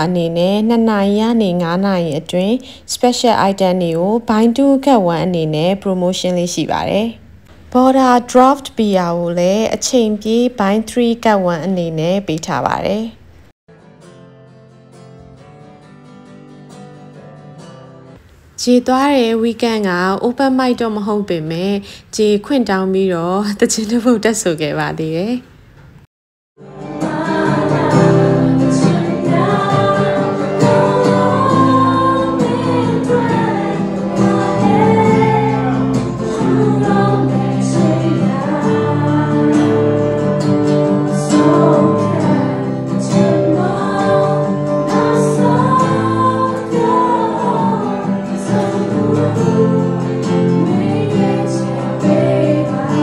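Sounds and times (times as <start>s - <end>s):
strummed acoustic guitar: 13.7s - 18.2s, 26.6s - 53.0s
woman singing into a microphone: 27.0s - 39.9s, 41.1s - 53.0s.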